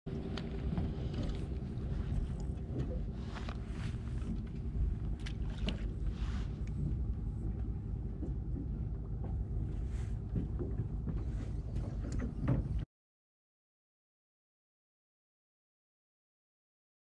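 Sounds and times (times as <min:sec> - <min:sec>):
boat engine humming: 0:00.1 - 0:12.8.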